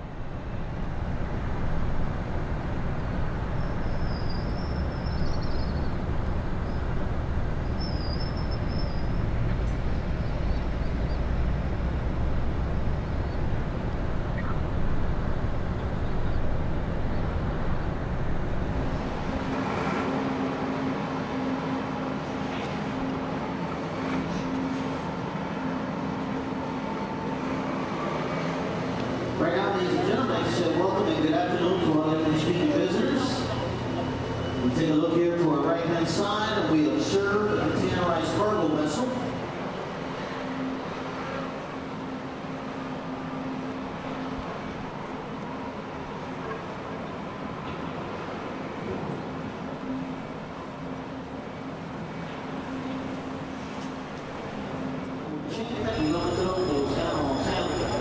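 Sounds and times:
pitched motor drone: 0.0s - 20.1s
heavy machinery rumbling: 0.0s - 20.2s.

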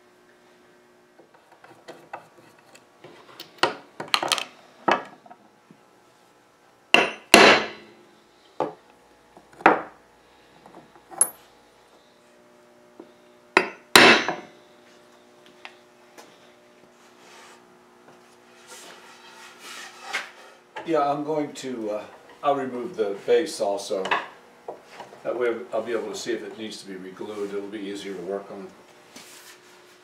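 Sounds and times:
hammer tapping metal punches: 7.0s - 7.8s, 13.6s - 14.5s.

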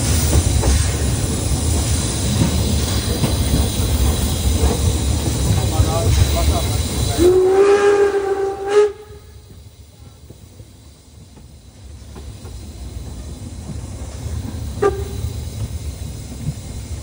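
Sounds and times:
train running noise: 0.0s - 17.0s
steam locomotive whistle: 7.1s - 9.6s, 14.8s - 15.4s.

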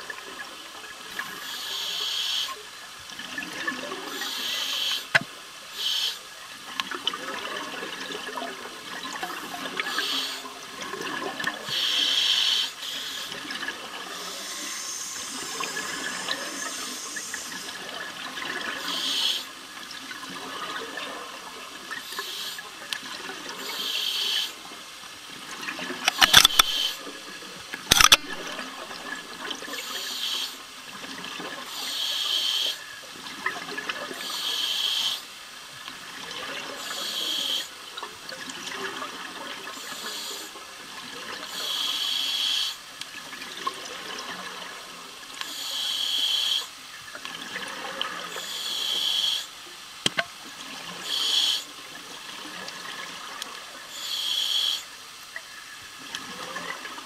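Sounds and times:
sharp clicks: 26.0s - 26.9s, 27.9s - 28.4s.

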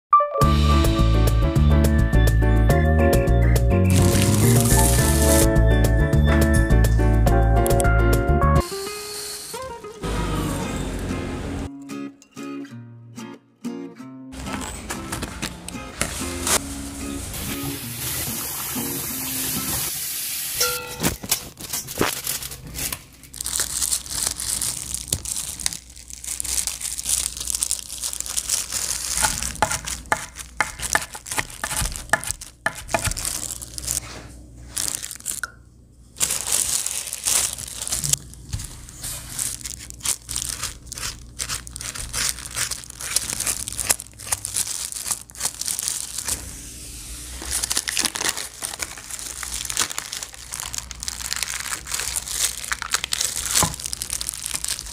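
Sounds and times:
plastic gloves and wrapping crinkling: 3.8s - 5.6s, 14.4s - 54.9s.

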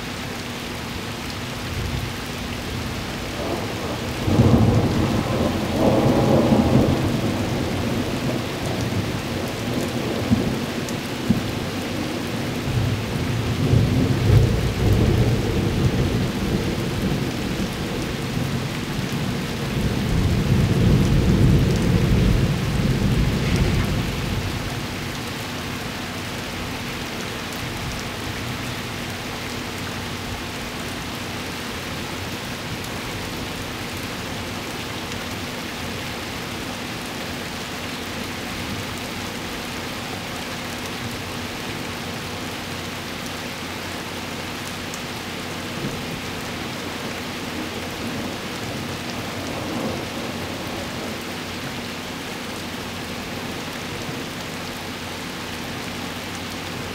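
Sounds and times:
rain hiss: 0.0s - 56.9s
thunder rumbling low: 13.6s - 24.7s.

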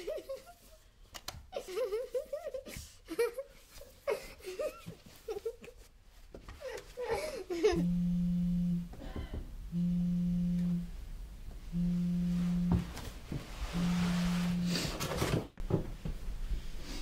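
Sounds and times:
phone vibrating on a desk: 7.8s - 11.0s, 11.7s - 13.0s, 13.6s - 15.0s.

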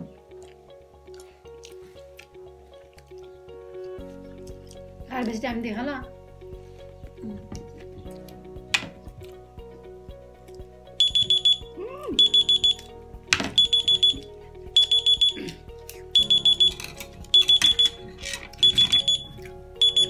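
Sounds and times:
background music: 0.0s - 20.0s
timer alarm high beeps: 11.0s - 12.9s, 13.5s - 15.4s, 16.2s - 20.0s.

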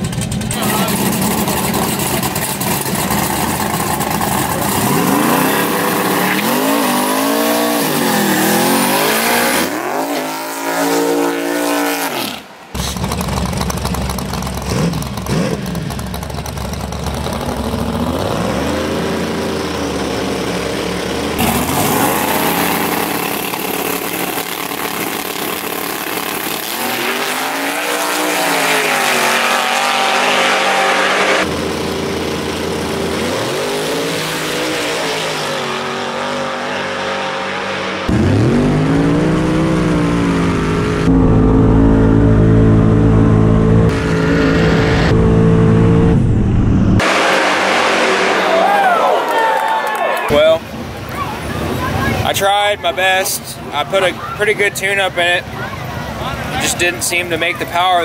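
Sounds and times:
racing car engines revving: 0.0s - 58.0s.

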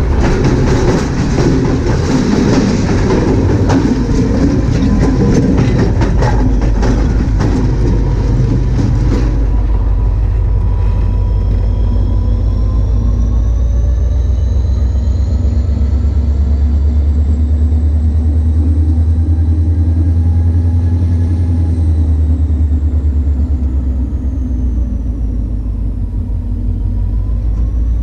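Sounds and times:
freight cars rumbling and rattling: 0.0s - 28.0s
faint rising whine: 8.4s - 28.0s.

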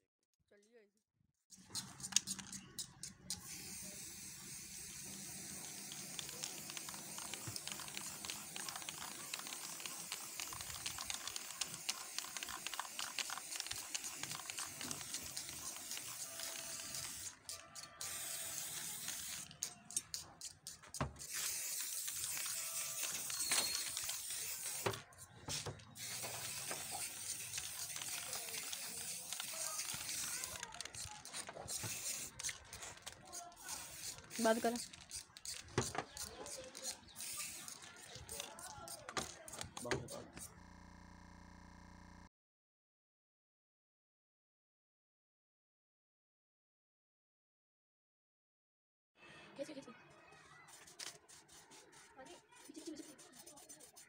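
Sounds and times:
spray paint can hissing: 1.5s - 40.6s, 50.7s - 54.0s.

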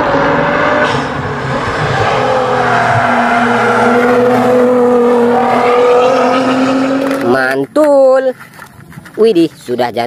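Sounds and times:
car engine running hard: 0.0s - 7.5s.

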